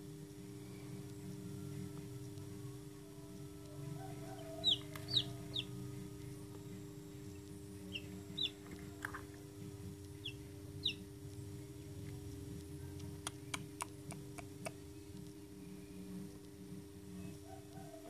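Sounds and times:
steady low hum: 0:00.0 - 0:18.0
chick peeping: 0:04.0 - 0:05.9, 0:07.9 - 0:09.2, 0:10.1 - 0:11.1.

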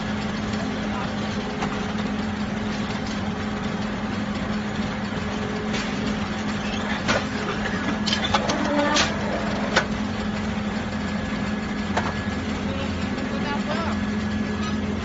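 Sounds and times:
factory machinery humming: 0:00.0 - 0:15.0.

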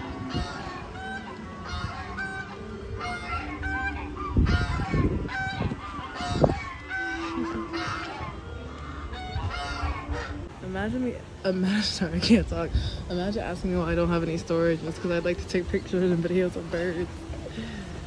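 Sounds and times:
geese honking: 0:00.0 - 0:10.6.

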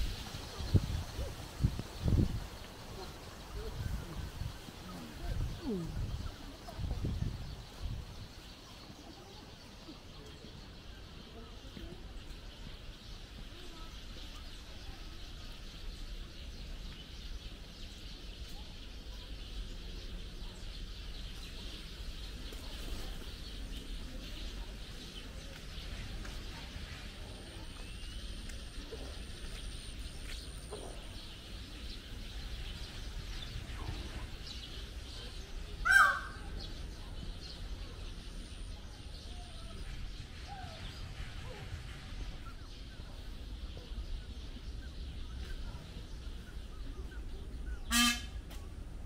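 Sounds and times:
faint bird calls: 0:35.2 - 0:36.8
loud short bird call: 0:47.8 - 0:48.4.

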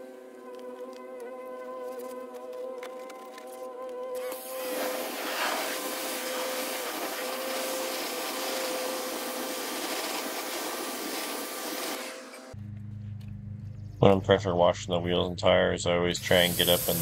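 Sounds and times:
pressure washer spraying: 0:04.2 - 0:12.6, 0:16.2 - 0:17.0.

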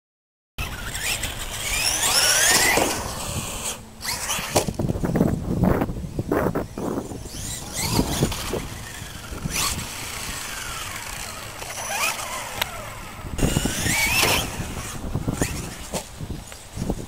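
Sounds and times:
electric rc truck motor whining: 0:00.6 - 0:17.0.

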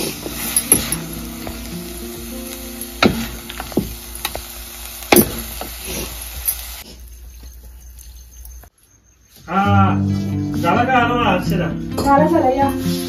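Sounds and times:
soft sizzle from pan: 0:00.0 - 0:08.0.

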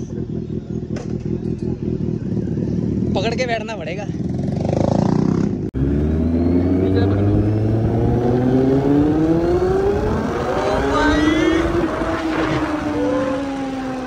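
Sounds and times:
motorcycle engine accelerating: 0:00.0 - 0:14.0
wind noise: 0:07.2 - 0:14.0.

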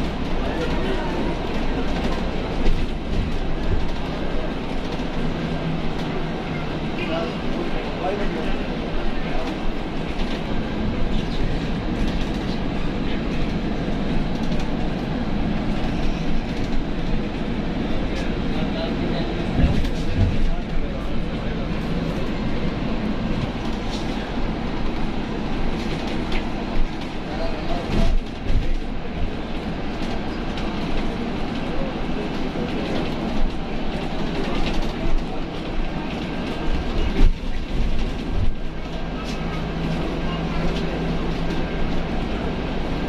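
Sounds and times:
bus rumble and road noise: 0:00.0 - 0:43.0.

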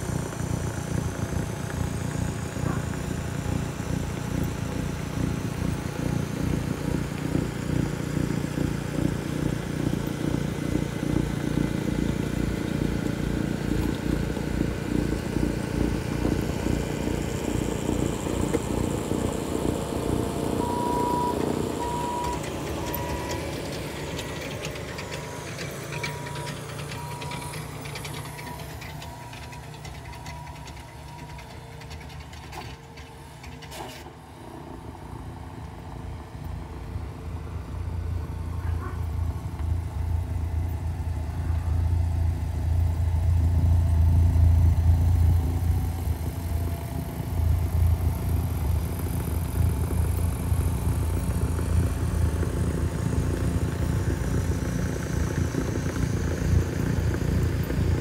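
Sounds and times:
snow blower running: 0:00.0 - 0:58.0
reversing alarm beeping: 0:20.4 - 0:33.6.

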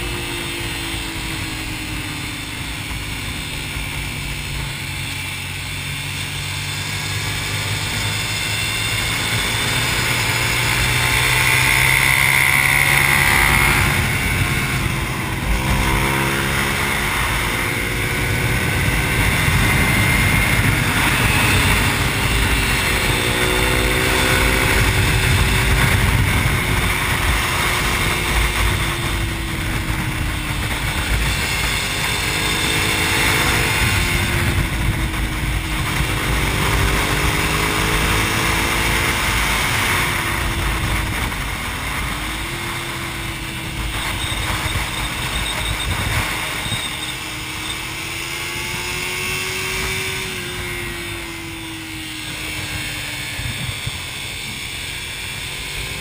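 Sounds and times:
motorcycle engine at speed: 0:00.0 - 0:56.0
wind rushing: 0:08.2 - 0:46.7.

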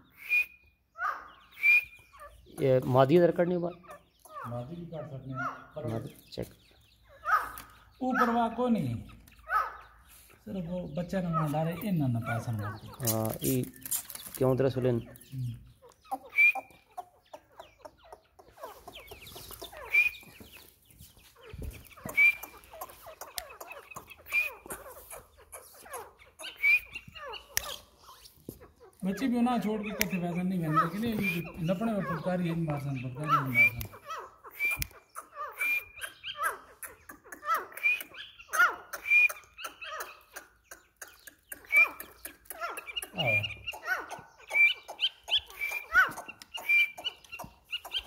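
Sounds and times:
francolins chirping calls: 0:00.0 - 0:48.0
soft quick falling peeps: 0:11.1 - 0:48.0.

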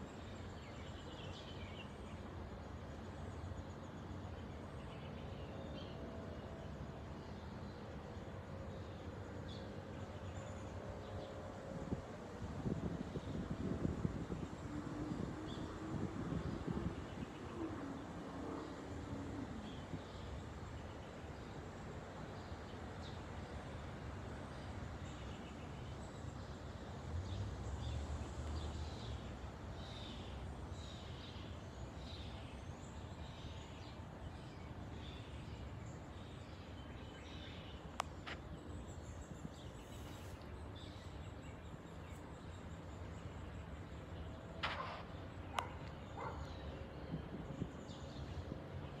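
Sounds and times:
wind in leafy trees: 0:00.0 - 0:49.0
small birds chirping: 0:27.6 - 0:49.0.

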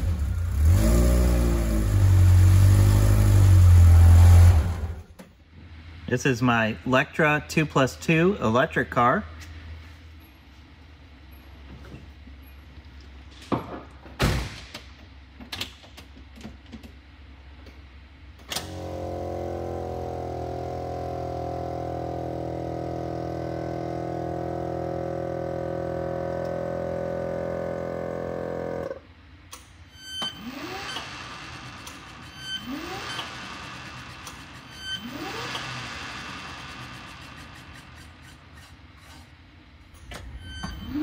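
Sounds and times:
electric motor whining hum: 0:18.8 - 0:29.0
short rising whine: 0:29.9 - 0:38.8, 0:40.0 - 0:41.0.

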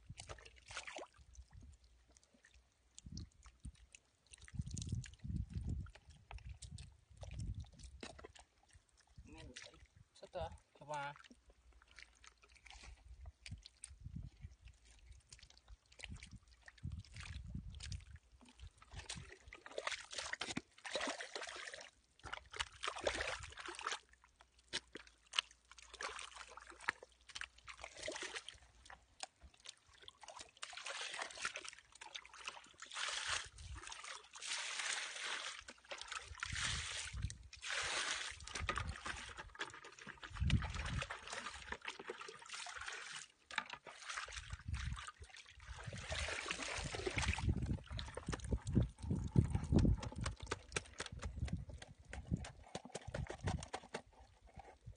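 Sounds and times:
squelching through wet mud: 0:00.0 - 0:10.0, 0:11.0 - 0:54.9
water splashing and trickling: 0:00.0 - 0:54.9.

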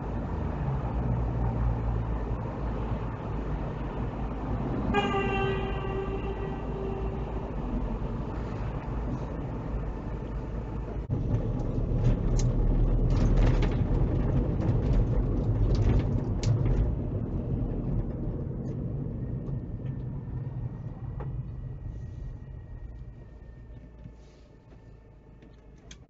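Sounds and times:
car engine: 0:00.0 - 0:26.0
road and tyre noise: 0:00.0 - 0:26.0
level crossing alarm tone: 0:04.9 - 0:08.4.

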